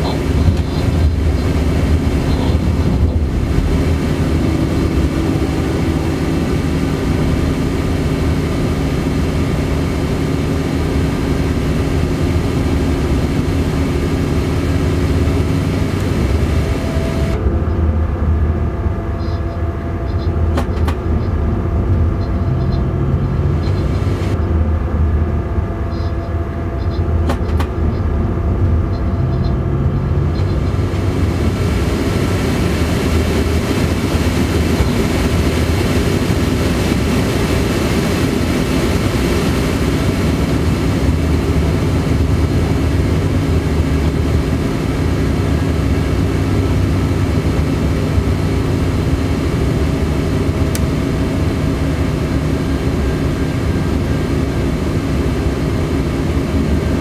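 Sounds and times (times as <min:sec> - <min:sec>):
low humming tones: 0:00.0 - 0:57.0
rushing noise: 0:00.0 - 0:57.0
train wheels rumbling: 0:00.0 - 0:57.0
sharp click: 0:20.6 - 0:21.0, 0:27.3 - 0:27.8.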